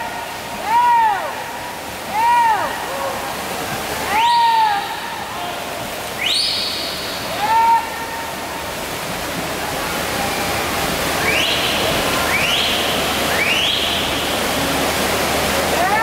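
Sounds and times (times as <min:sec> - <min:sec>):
echoing crowd noise: 0:00.0 - 0:16.0
swimmers splashing: 0:00.0 - 0:16.0.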